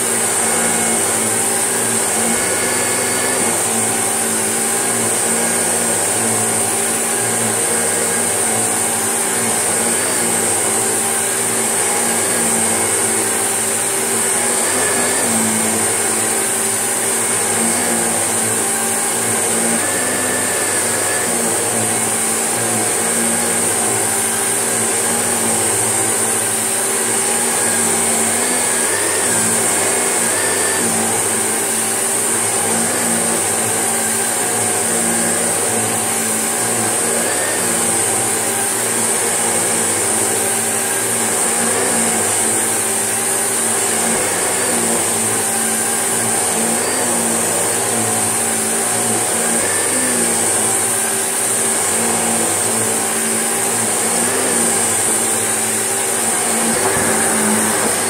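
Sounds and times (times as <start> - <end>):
vacuum cleaner whining over rug: 0.0 - 58.0.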